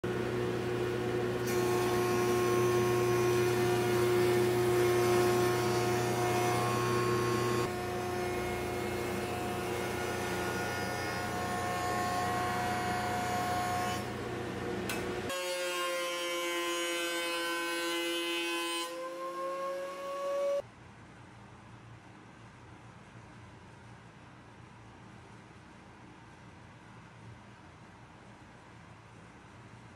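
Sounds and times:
thickness planer running: 0:00.1 - 0:19.2
jointer machine drone: 0:00.1 - 0:20.6.

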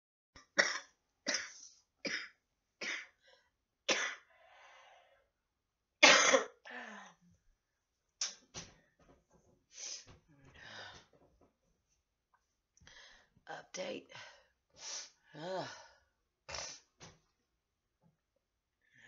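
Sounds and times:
woman coughing: 0:06.0 - 0:06.6.

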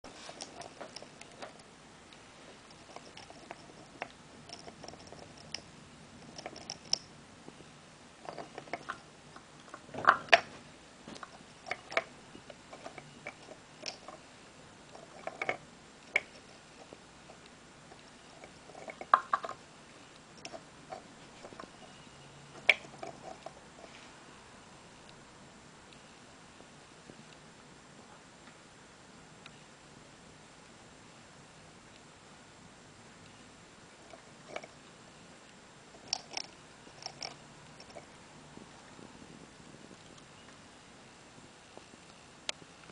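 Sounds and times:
hamster scrabbling and gnawing wood: 0:00.1 - 0:01.6, 0:02.6 - 0:07.1, 0:08.2 - 0:19.6, 0:20.2 - 0:22.0, 0:22.6 - 0:24.0, 0:34.0 - 0:34.8, 0:35.9 - 0:38.1.

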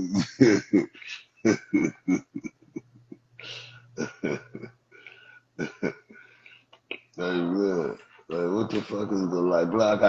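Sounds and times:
man laughing: 0:00.0 - 0:04.8, 0:05.6 - 0:06.4.

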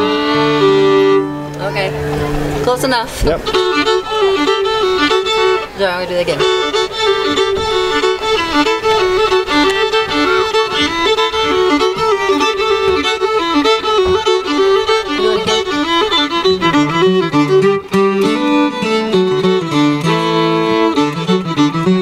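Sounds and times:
fiddle playing bluegrass melody: 0:00.0 - 0:22.0.

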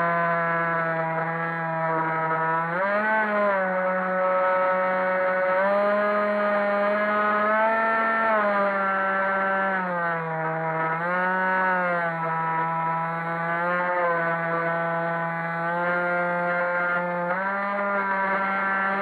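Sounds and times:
electric motor and propeller whining: 0:00.0 - 0:19.0.

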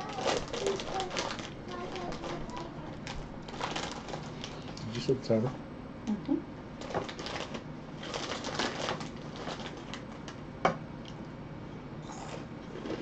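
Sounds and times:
snack bag crinkling: 0:00.0 - 0:04.8, 0:06.8 - 0:10.4
crunching of snacks being chewed: 0:00.0 - 0:04.9, 0:06.8 - 0:10.4.

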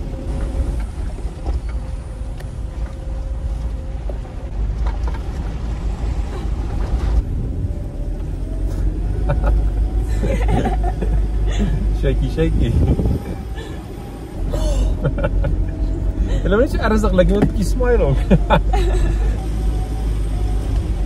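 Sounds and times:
vehicle rumbling on bumpy road: 0:00.0 - 0:21.0
knocks and rattles from bumps: 0:17.2 - 0:17.8.

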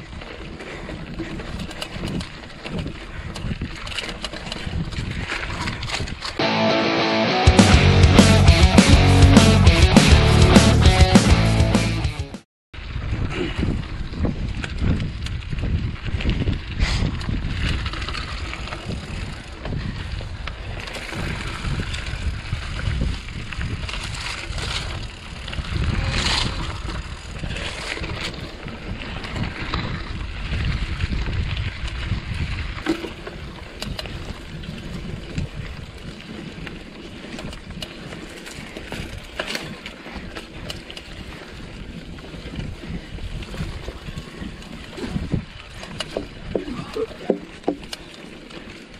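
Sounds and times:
bike rattling over bumps: 0:00.0 - 0:06.4, 0:12.8 - 0:48.9
wind rumbling on microphone: 0:00.0 - 0:06.4, 0:12.8 - 0:48.9
tyres crunching on dirt: 0:17.3 - 0:48.9.

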